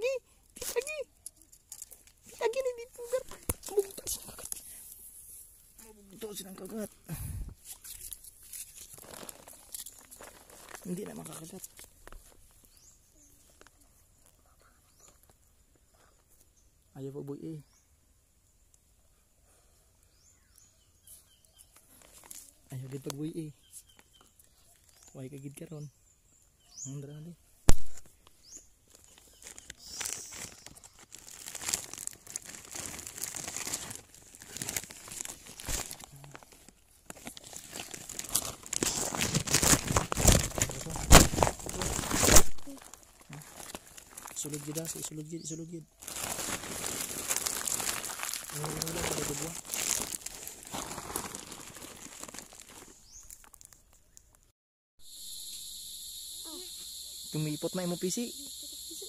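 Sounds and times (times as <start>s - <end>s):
hands scrabbling through dry leaves: 7.6s - 11.8s, 28.9s - 45.1s, 46.0s - 53.8s
night insects chorus: 55.0s - 59.0s.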